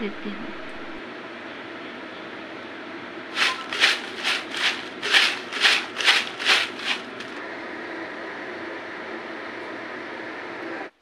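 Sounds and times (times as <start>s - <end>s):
snacks rattling in paper-lined bowl: 3.4s - 7.4s.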